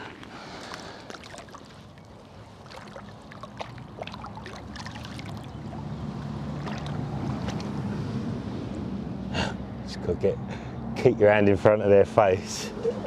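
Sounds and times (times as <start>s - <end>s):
water splashing and trickling: 0.0s - 9.0s.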